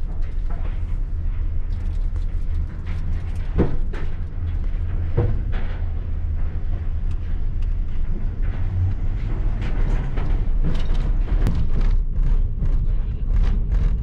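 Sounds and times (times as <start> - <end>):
low rumble of vehicle on train: 0.0 - 14.0.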